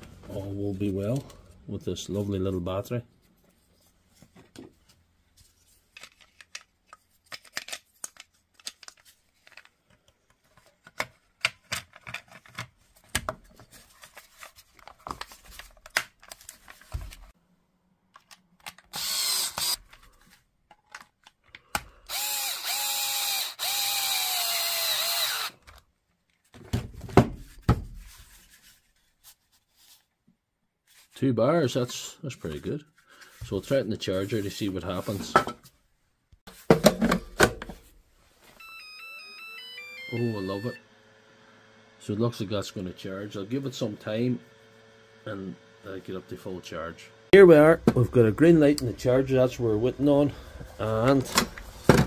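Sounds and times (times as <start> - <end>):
plastic parts clicking: 6.0 - 13.4, 18.1 - 20.0, 20.7 - 22.0
drill-driver motor running: 18.9 - 19.8, 22.1 - 25.6.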